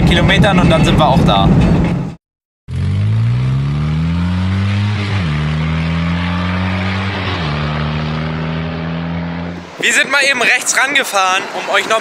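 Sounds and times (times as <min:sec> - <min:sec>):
car engine accelerating: 0:02.7 - 0:09.8.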